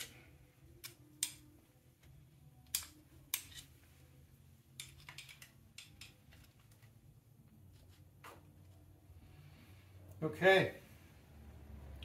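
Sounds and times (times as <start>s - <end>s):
screwdriver clicking and scraping metal: 0.0s - 3.8s, 4.7s - 6.9s.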